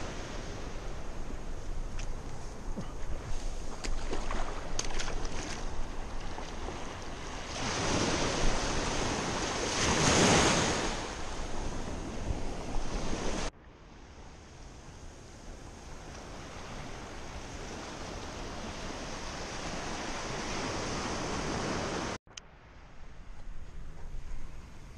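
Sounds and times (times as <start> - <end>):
wind on microphone: 0.0 - 13.5
small waves breaking on sand: 0.0 - 22.2.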